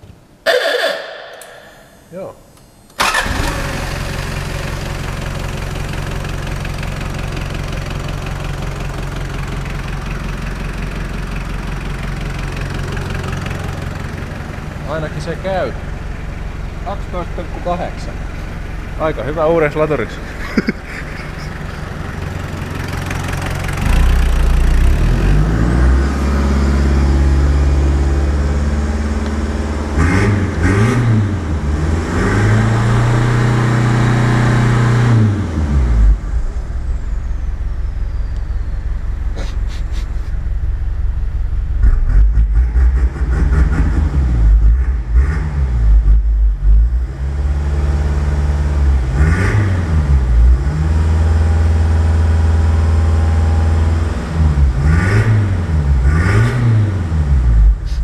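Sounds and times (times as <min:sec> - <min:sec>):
car engine revving: 0:16.8 - 0:58.0.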